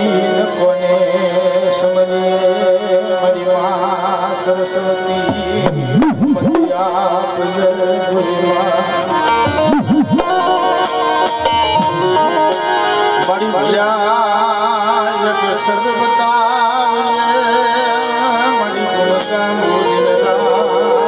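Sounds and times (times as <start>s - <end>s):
wavering instrumental melody: 4.3s - 14.2s, 18.6s - 21.0s
steady accompaniment: 4.3s - 15.5s, 18.4s - 21.0s.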